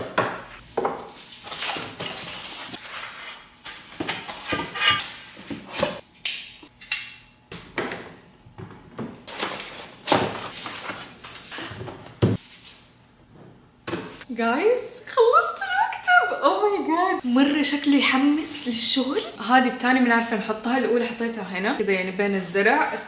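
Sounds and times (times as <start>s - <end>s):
cardboard and paper rustling: 9.3s - 12.6s.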